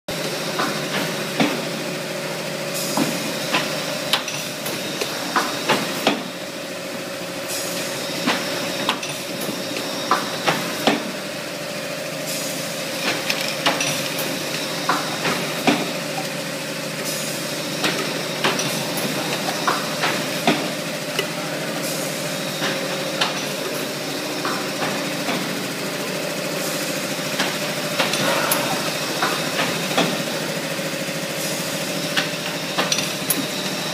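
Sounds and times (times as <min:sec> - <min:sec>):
sharp mechanical clicks and clanks: 0:03.0 - 0:06.3, 0:12.9 - 0:16.4, 0:32.0 - 0:33.9.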